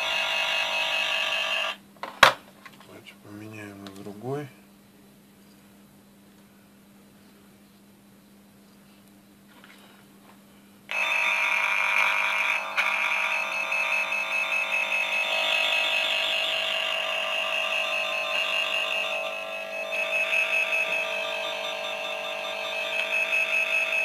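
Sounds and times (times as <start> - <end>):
cable tracer probe warbling buzz: 10.9 - 24.0.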